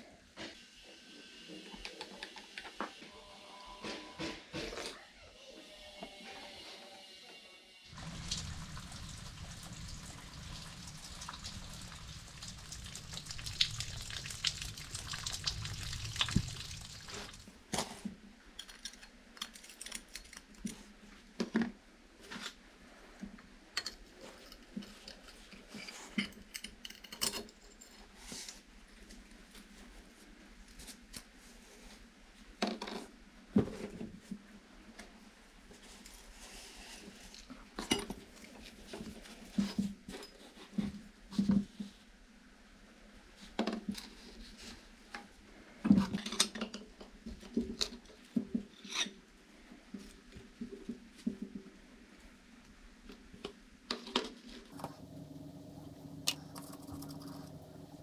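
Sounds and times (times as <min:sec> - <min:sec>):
liquid pouring and splashing: 0:07.9 - 0:17.6.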